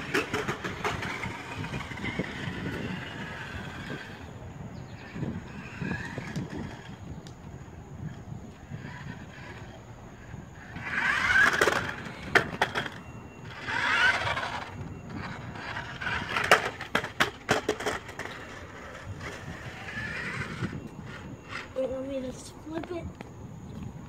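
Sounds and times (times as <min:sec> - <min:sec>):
toy car clattering on steps: 0:00.0 - 0:04.2, 0:05.1 - 0:07.4, 0:10.6 - 0:21.8
small electric motor whirring: 0:00.0 - 0:22.0.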